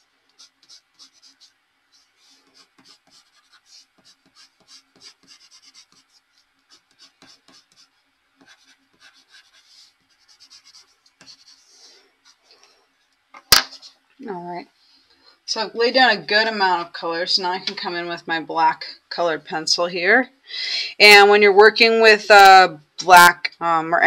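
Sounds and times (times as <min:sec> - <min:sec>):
pencil scratching on paper: 0:00.4 - 0:12.5.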